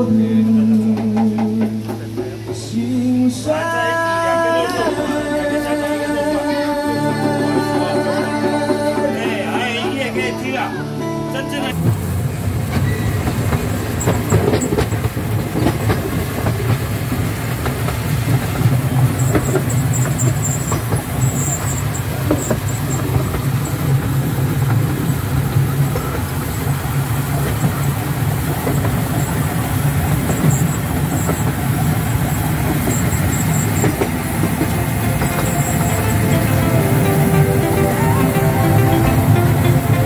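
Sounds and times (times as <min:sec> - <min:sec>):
train car rumbling: 0:00.0 - 0:40.0
train clicks: 0:00.5 - 0:03.1, 0:11.8 - 0:40.0.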